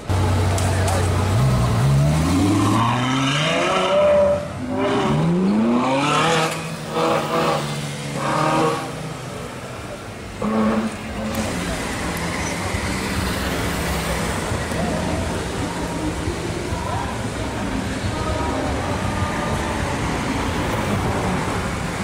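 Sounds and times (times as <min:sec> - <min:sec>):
crowd voices: 0:00.0 - 0:22.0
sports car accelerating hard: 0:01.0 - 0:09.3.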